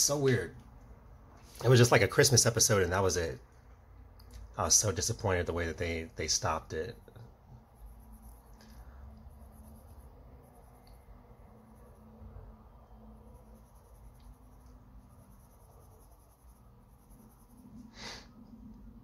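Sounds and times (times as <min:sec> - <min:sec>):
pencil scratching on paper: 0:07.6 - 0:10.8, 0:13.1 - 0:17.9.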